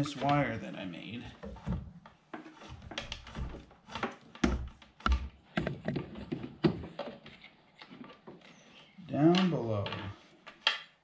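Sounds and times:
cable clicking and tapping on plastic: 9.3 - 11.0.

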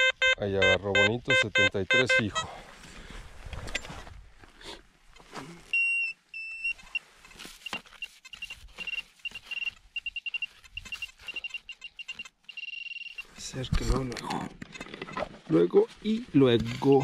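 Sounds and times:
metal detector beeping: 0.0 - 2.6, 5.7 - 13.5
rustling in grass: 6.8 - 13.4.

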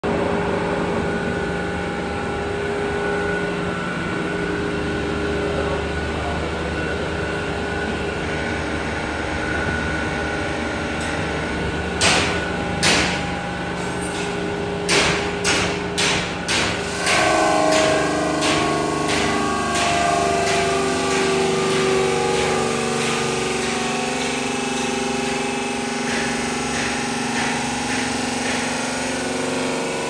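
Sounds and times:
machine motor humming: 16.8 - 30.0.

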